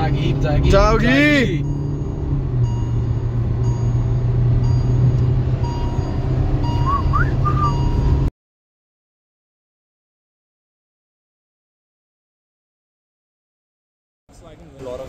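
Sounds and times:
engine and road hum: 0.0s - 8.3s, 14.3s - 15.0s.

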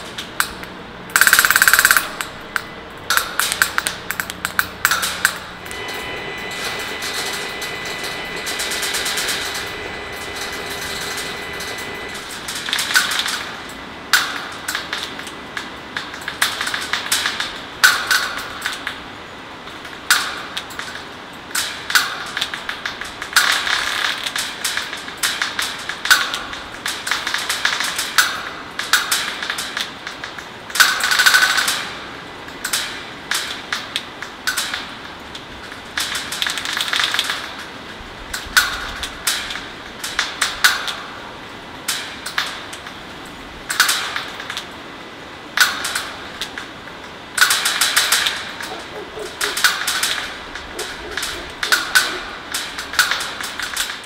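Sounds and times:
robotic woodpeckers tapping metal: 0.4s - 5.8s, 47.5s - 53.3s.

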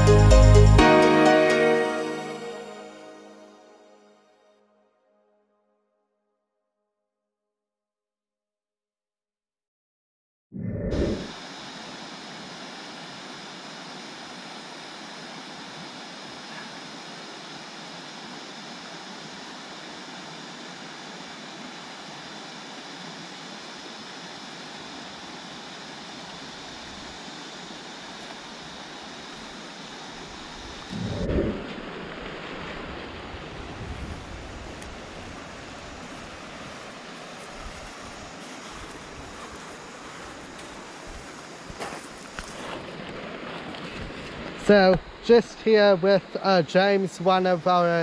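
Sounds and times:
creek water rushing: 11.3s - 48.0s.

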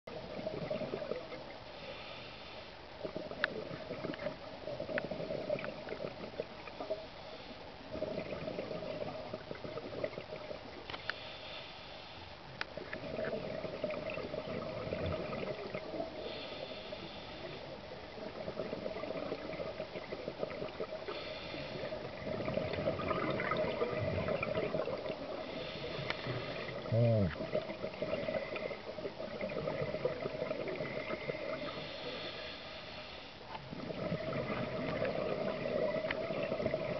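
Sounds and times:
exhaled bubbles rushing: 0.1s - 1.5s, 3.0s - 7.0s, 7.9s - 10.8s, 12.8s - 16.6s, 17.4s - 32.2s, 33.6s - 36.9s
inhale hiss through regulator: 1.7s - 2.8s, 10.9s - 12.4s, 16.1s - 17.8s, 21.0s - 22.0s, 25.3s - 27.4s, 31.0s - 33.6s.

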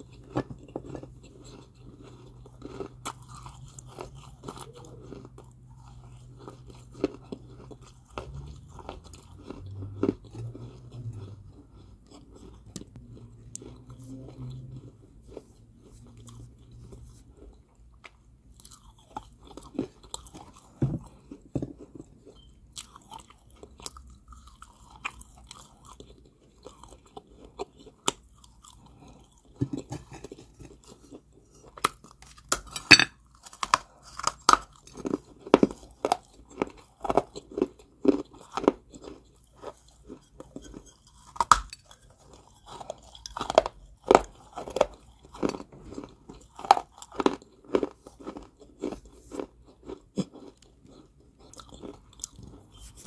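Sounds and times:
person chewing crunchy clay: 0.0s - 53.0s.

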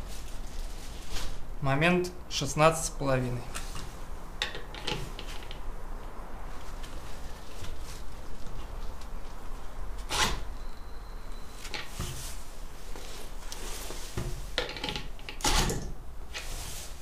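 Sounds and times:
glove rustle: 0.0s - 1.6s, 6.4s - 10.0s, 11.4s - 14.6s, 16.3s - 17.0s
metal knocking and scraping on wood: 14.2s - 15.9s.

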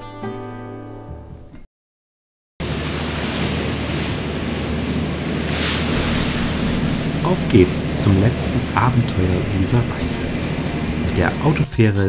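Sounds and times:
guitar music: 0.0s - 1.6s, 5.9s - 11.7s
low drone: 2.6s - 11.7s
wind and water rushing: 2.6s - 11.7s.

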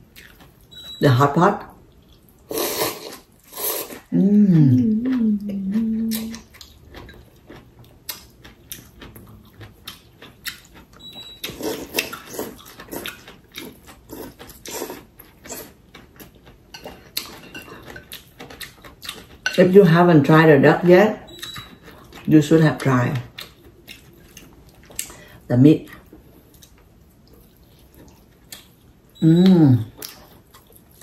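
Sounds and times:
chewing: 0.1s - 0.6s, 4.8s - 19.9s, 21.3s - 29.2s, 29.8s - 31.0s
noodles being slurped: 2.5s - 4.1s
person humming mmm: 4.1s - 6.5s, 29.2s - 30.0s.

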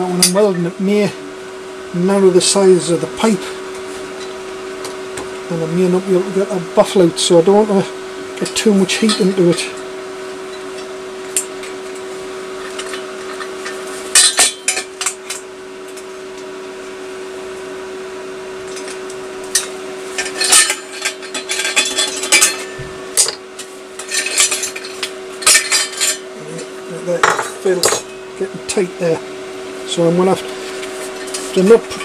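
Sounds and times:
machine hum: 0.0s - 32.0s
metal pipe parts clinking: 8.4s - 9.7s, 12.6s - 15.4s, 18.7s - 23.4s, 24.0s - 28.2s.

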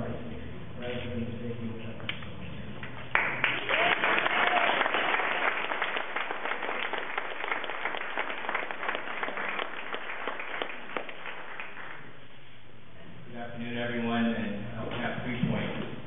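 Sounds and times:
audience applauding: 3.0s - 12.2s.

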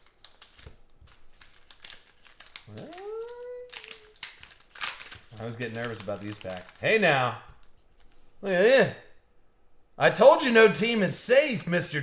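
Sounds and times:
foil pack crackling: 0.0s - 7.3s.

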